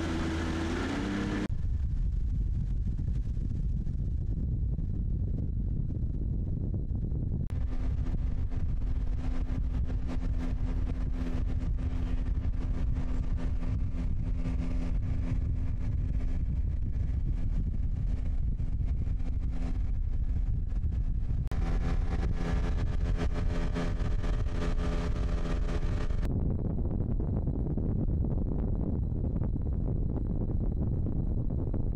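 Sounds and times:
boat running across water: 0:00.0 - 0:01.5, 0:07.5 - 0:26.3
outboard motor running: 0:00.0 - 0:01.5, 0:07.6 - 0:17.3, 0:21.5 - 0:26.3
wind on microphone: 0:00.0 - 0:31.9.

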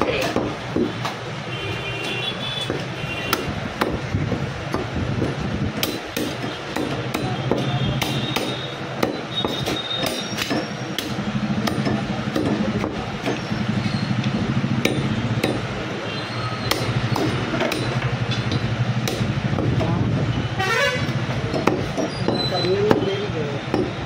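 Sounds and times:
cleaver chopping meat and bone: 0:00.0 - 0:01.2, 0:02.6 - 0:04.0, 0:04.7 - 0:13.5, 0:14.3 - 0:15.9, 0:16.6 - 0:20.0, 0:21.4 - 0:24.0.

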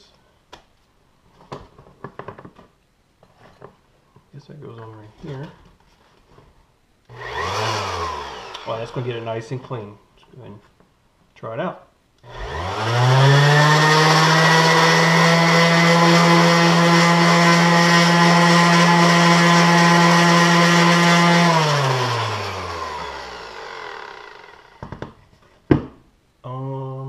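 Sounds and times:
orbital sander running: 0:07.1 - 0:09.2, 0:12.2 - 0:24.8
sander winding down: 0:07.1 - 0:09.2, 0:12.2 - 0:24.8.

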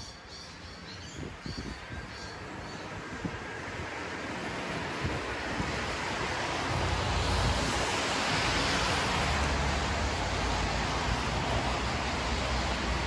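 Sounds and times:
tyres hissing on wet road: 0:02.2 - 0:13.0
steady rain: 0:02.4 - 0:13.0.

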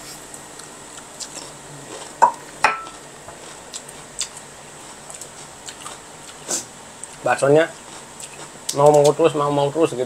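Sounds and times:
tableware clinking: 0:02.6 - 0:03.0.

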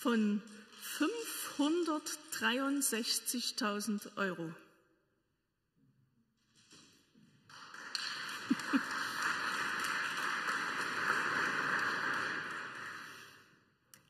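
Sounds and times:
congregation applauding: 0:07.5 - 0:13.4.

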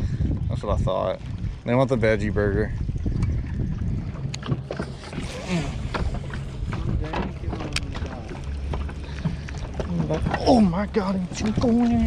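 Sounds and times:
water and wind rumble: 0:00.0 - 0:12.0
knocks and clicks on hull: 0:03.0 - 0:12.0.

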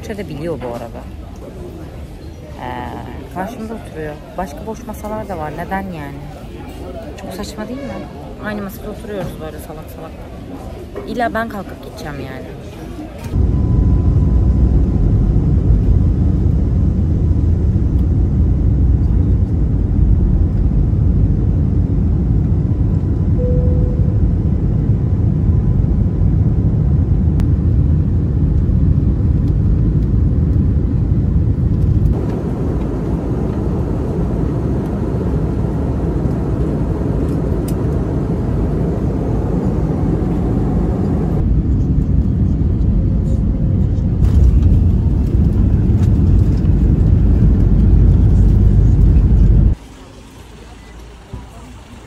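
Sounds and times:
airliner cabin rumble: 0:13.0 - 0:52.0.

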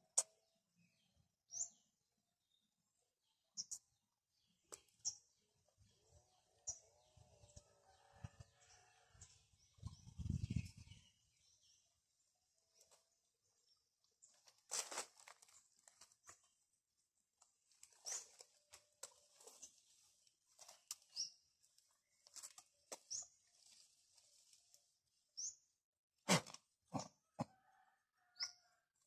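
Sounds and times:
leaves rustling: 0:14.3 - 0:16.2
twigs cracking: 0:14.3 - 0:16.4.

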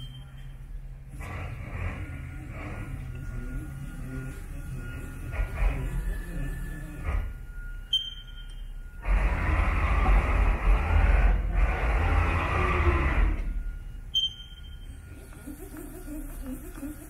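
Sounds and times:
short electronic beeps: 0:00.0 - 0:00.9, 0:02.8 - 0:09.0, 0:13.4 - 0:15.3
rushing rumbling machine noise: 0:00.8 - 0:17.0.

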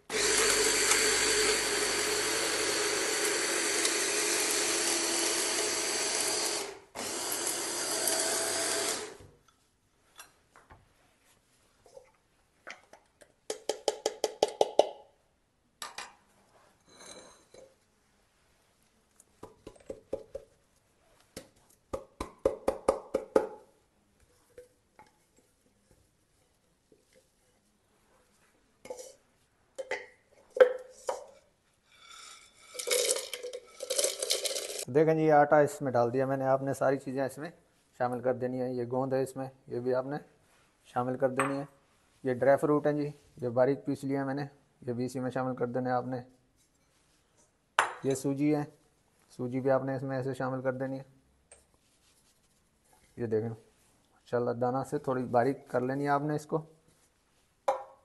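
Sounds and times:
hand blender motor whine: 0:00.1 - 0:09.2.

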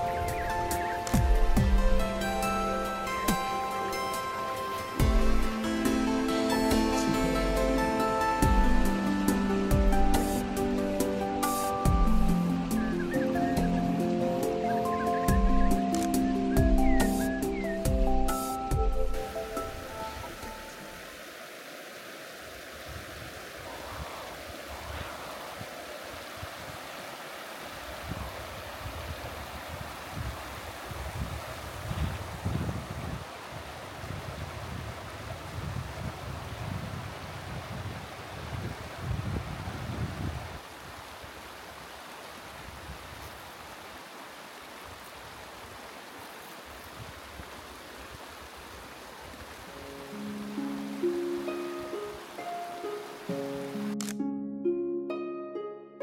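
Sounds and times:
running water rushing: 0:00.0 - 0:54.2
wind buffeting microphone: 0:27.8 - 0:41.2.

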